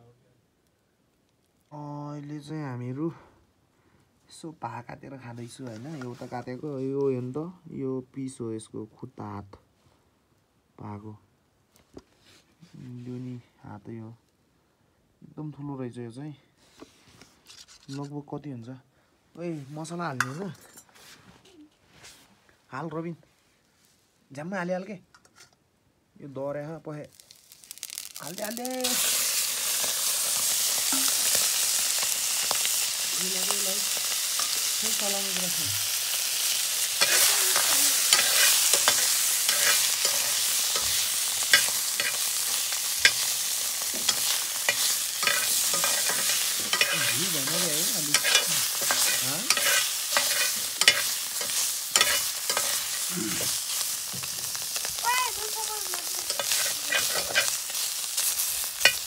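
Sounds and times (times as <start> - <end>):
meat sizzling in a pan: 27.0 - 59.0
metal spatula scraping a pan: 33.8 - 35.3, 36.4 - 53.8, 56.2 - 59.0.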